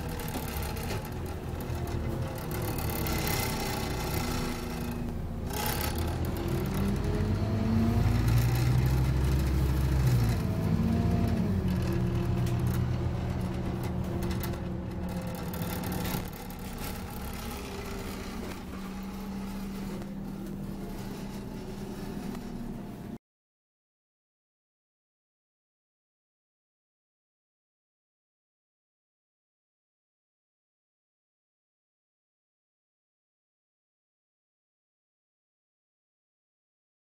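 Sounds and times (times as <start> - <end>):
bus engine from inside: 0.0 - 23.2.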